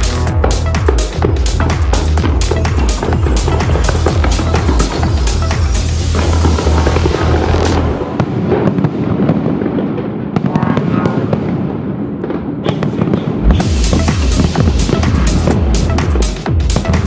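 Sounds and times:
music with deep bass: 0.0 - 8.1, 13.4 - 17.0
fireworks bursting: 0.0 - 17.0.

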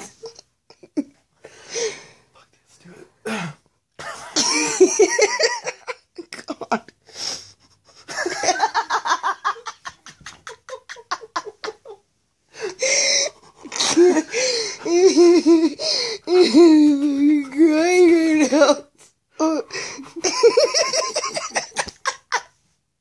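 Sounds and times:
person laughing breathlessly: 4.1 - 6.2, 6.8 - 18.8, 19.4 - 22.6.

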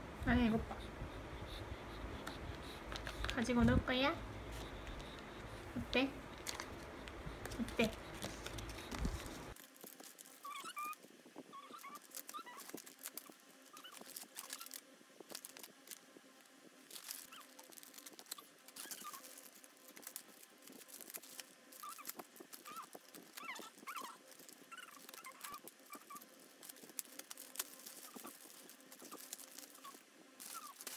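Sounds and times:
plastic packets crinkling: 6.3 - 30.9.

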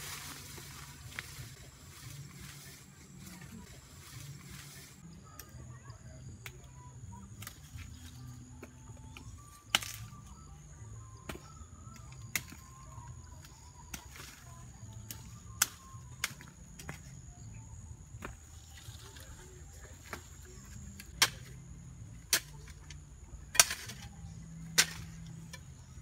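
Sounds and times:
rustling of roots and soil: 0.0 - 5.0, 18.2 - 26.0
roots snapping with sharp cracks: 9.7 - 10.2, 15.0 - 17.0, 21.0 - 21.6, 22.2 - 25.4.

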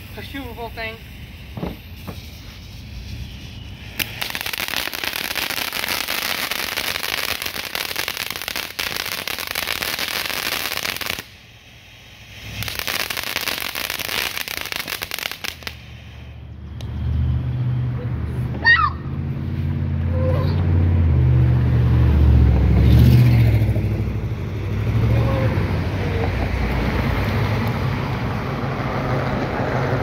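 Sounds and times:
fountain firework crackling hiss: 0.0 - 16.8, 23.3 - 30.0.

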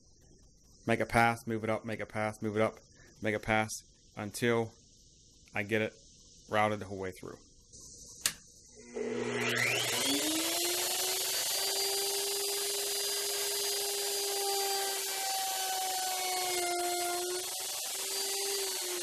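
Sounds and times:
sharp click: 8.2 - 8.5
electric router whining: 8.8 - 19.0
router cutting wood: 8.8 - 19.0.

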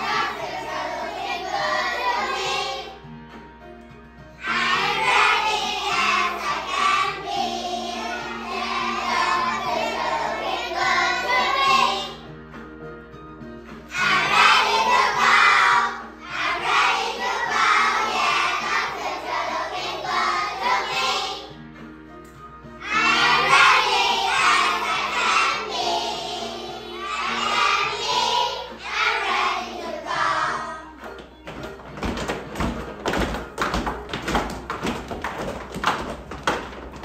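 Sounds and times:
children singing together: 0.0 - 3.0, 4.4 - 12.2, 13.9 - 21.5, 22.8 - 31.0
musical accompaniment: 0.0 - 37.0.

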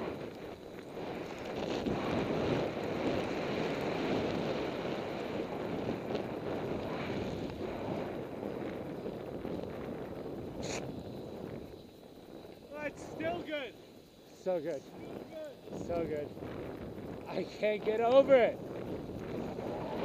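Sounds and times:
wind rushing over microphone: 0.0 - 20.0
snow hissing under skis: 5.8 - 8.1, 10.4 - 12.0.

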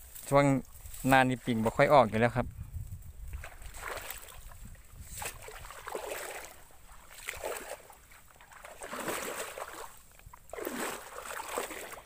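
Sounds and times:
water sloshing with steps: 3.2 - 12.0.

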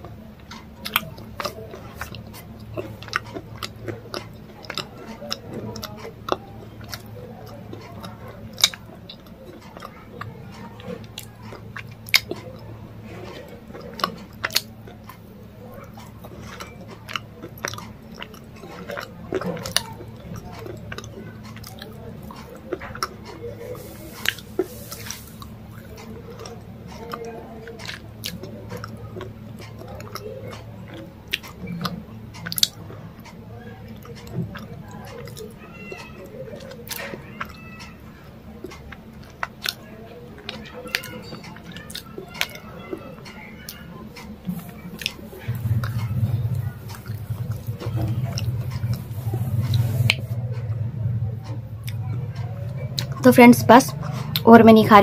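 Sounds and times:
person chewing crunchy food: 0.0 - 50.8
steady low hum: 43.6 - 55.0.

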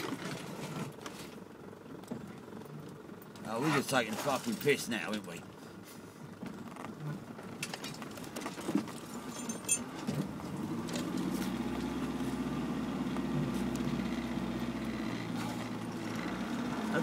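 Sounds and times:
engine drone: 0.0 - 17.0
knocks and rattles in vehicle cab: 6.3 - 10.4.

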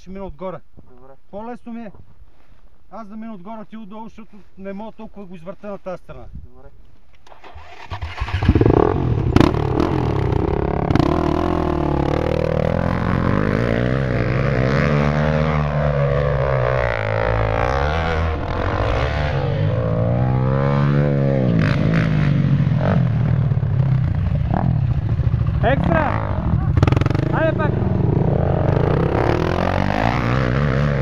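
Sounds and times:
off-road engines revving: 7.3 - 31.0.

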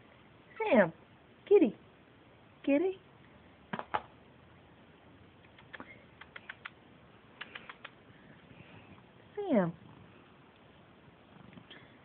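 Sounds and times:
sharp clicks: 5.4 - 6.8, 7.4 - 8.0.

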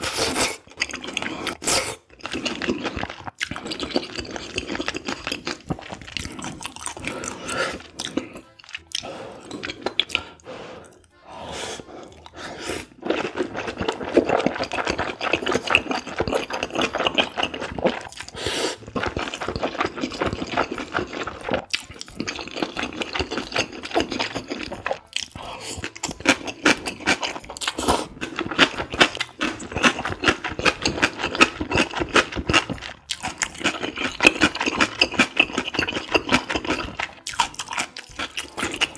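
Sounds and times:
slurping and chewing noodles: 0.0 - 38.9.

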